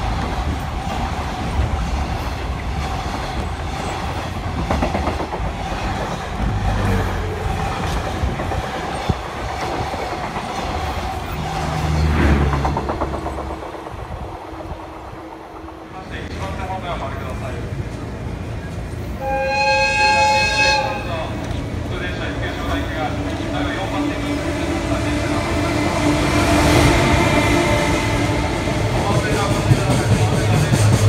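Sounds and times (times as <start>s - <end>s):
wheels clattering over rail joints: 0.0s - 14.2s
freight train wagons rolling past: 0.0s - 31.0s.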